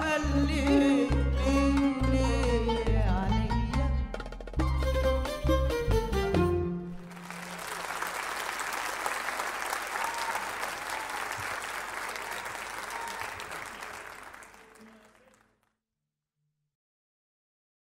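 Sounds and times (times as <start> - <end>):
audience applauding: 6.9 - 15.7.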